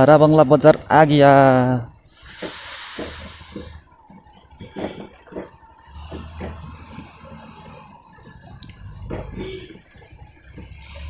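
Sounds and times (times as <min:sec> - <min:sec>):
motorcycle engine running: 0:07.9 - 0:11.0.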